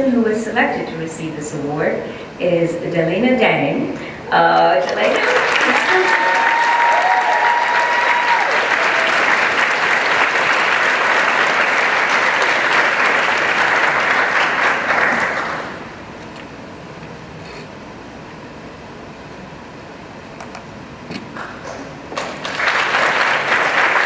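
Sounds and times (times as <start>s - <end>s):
low room hum: 0.0s - 24.0s
audience applauding: 4.6s - 15.9s, 22.1s - 24.0s.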